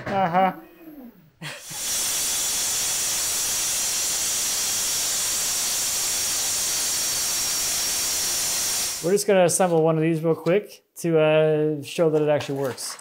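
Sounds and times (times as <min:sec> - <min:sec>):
track saw cutting board: 0:01.6 - 0:09.1.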